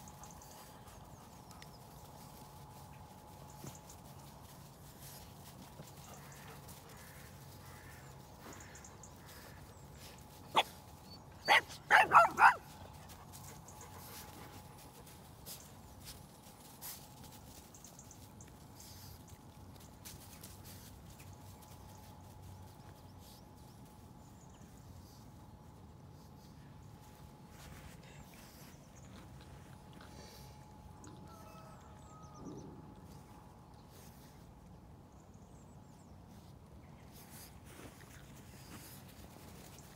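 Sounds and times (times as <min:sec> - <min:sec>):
dog barking: 0:11.5 - 0:12.7.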